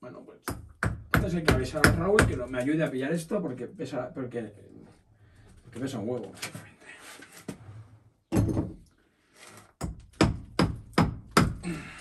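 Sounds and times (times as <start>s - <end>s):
hammer striking brickwork: 0.5s - 2.4s, 9.8s - 11.7s.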